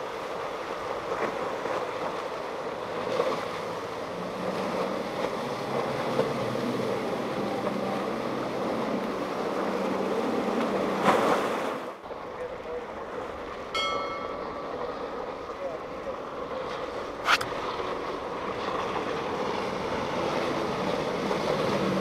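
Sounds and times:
boat engine drone: 0:00.0 - 0:22.0.

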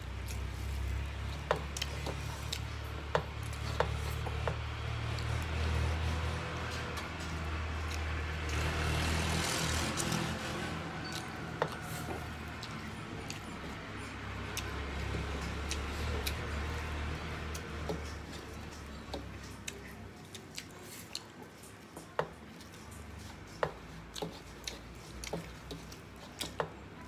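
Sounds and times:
fingers mixing food on steel plates: 0:00.0 - 0:27.0.

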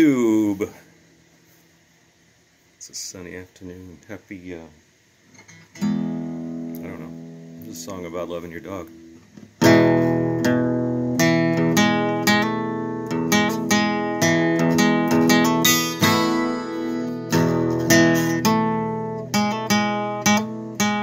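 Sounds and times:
acoustic guitar strumming: 0:05.3 - 0:21.0.

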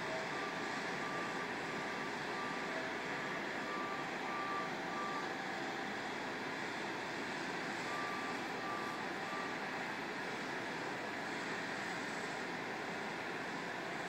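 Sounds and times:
machinery hum: 0:00.0 - 0:14.0
backup alarm beeping: 0:03.7 - 0:05.3, 0:07.9 - 0:09.5.

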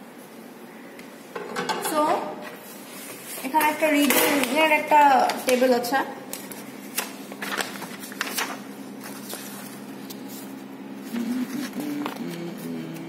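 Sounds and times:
paper pages being turned: 0:06.3 - 0:12.4.

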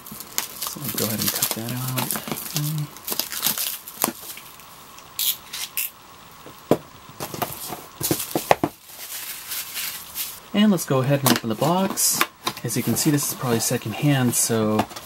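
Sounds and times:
plastic wrap crinkling: 0:00.0 - 0:05.9, 0:07.2 - 0:10.4.

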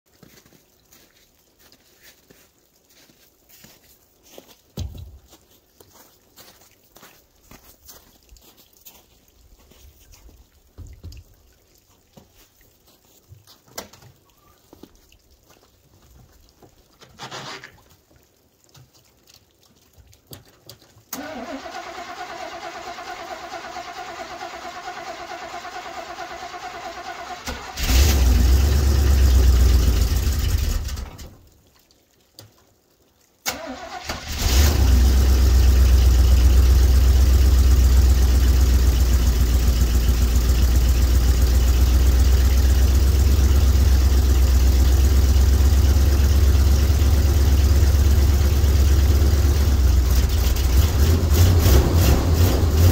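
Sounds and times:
engine running: 0:21.2 - 0:31.3, 0:34.3 - 0:52.9.

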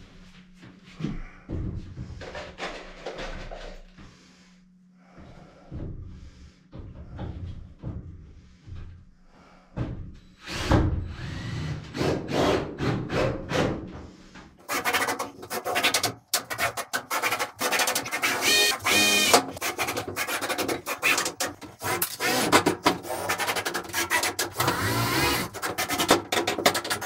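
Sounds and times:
hand scraping wall panel: 0:13.2 - 0:27.0.

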